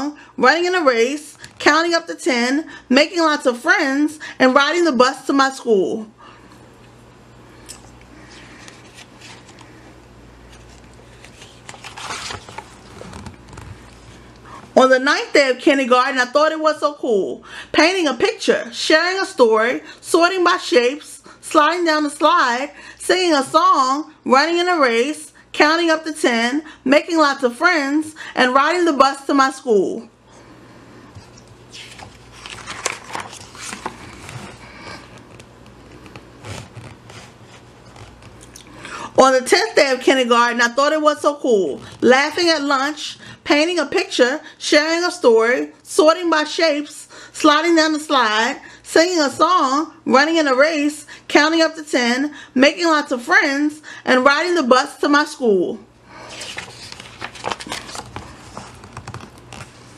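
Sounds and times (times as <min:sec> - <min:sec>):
book page turning: 0:08.2 - 0:09.8, 0:10.5 - 0:14.3, 0:31.2 - 0:38.6, 0:56.2 - 0:59.9
paper handling rustles: 0:08.2 - 0:14.3, 0:31.1 - 0:38.6, 0:56.2 - 0:59.9.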